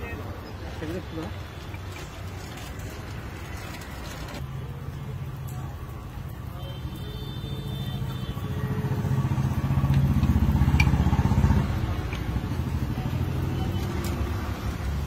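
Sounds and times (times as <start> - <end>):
passing motorcycle engine: 8.6 - 15.0.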